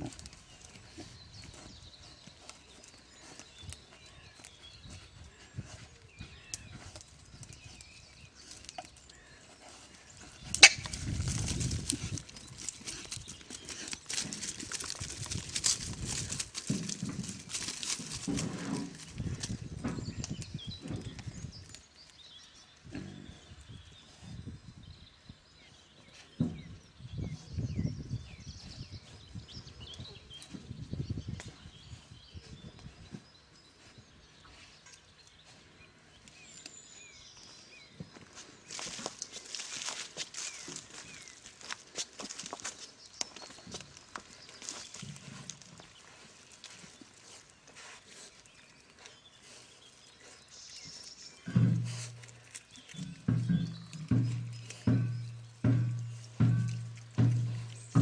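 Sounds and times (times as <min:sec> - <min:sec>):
small birds chirping: 0:00.0 - 0:58.0
pigs grunting softly: 0:22.8 - 0:24.3.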